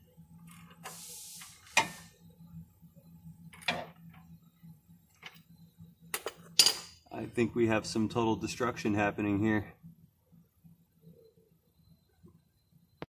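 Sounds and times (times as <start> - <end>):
faint steady hum: 0.0 - 13.0
short scraping hiss: 0.8 - 2.1.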